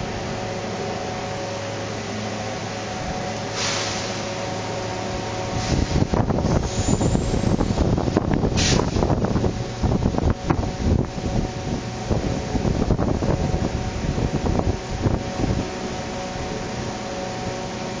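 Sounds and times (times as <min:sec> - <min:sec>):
filter machinery rumbling: 0:00.0 - 0:18.0
wind bumps on microphone: 0:05.5 - 0:15.7.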